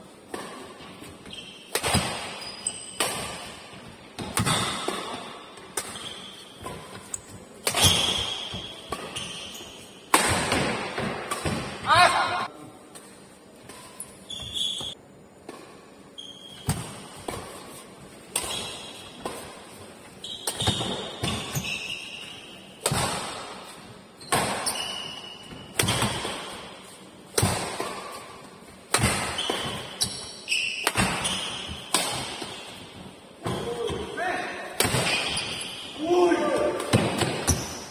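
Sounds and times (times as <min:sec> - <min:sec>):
badminton rackets hitting shuttlecock: 0:00.2 - 0:15.9, 0:16.6 - 0:34.0, 0:34.6 - 0:37.9
shoe squeaks: 0:01.2 - 0:01.7, 0:02.3 - 0:03.0, 0:05.9 - 0:10.0, 0:13.9 - 0:15.0, 0:16.1 - 0:16.8, 0:20.1 - 0:22.7, 0:24.2 - 0:25.7, 0:29.3 - 0:31.8, 0:35.1 - 0:36.1.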